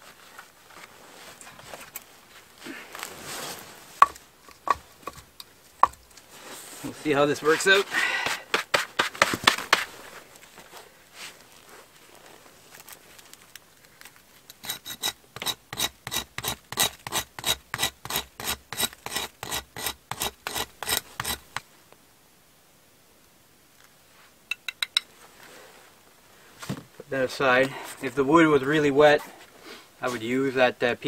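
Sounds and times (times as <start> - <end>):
blade rasping on wood: 7.4 - 9.9, 14.5 - 21.6.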